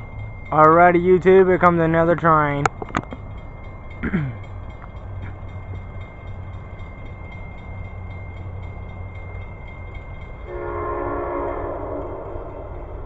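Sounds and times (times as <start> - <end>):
train rumbling: 0.0 - 13.0
train horn chord: 10.5 - 13.0.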